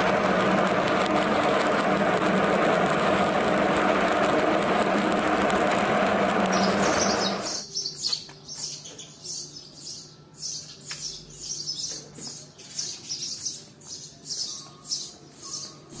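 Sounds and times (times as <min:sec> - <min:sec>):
welding arc crackling: 0:00.0 - 0:07.7.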